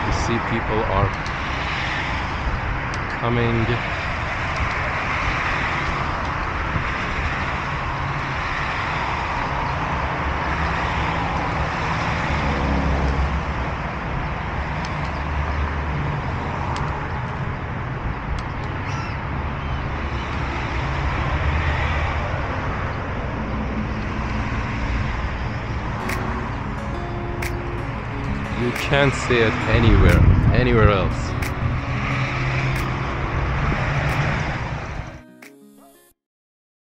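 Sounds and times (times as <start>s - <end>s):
engine and tyre rumble: 0.0s - 26.7s
cars passing on road: 0.0s - 35.2s.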